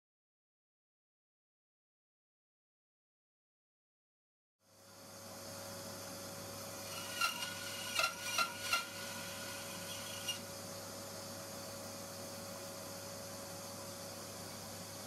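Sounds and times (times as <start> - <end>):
steady hum: 4.7 - 15.0.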